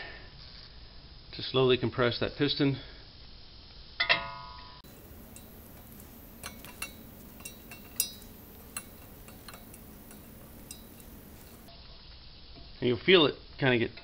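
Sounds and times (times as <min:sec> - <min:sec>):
faint steady hum: 0:04.6 - 0:12.7
metal tool clicking and clinking: 0:04.8 - 0:11.7.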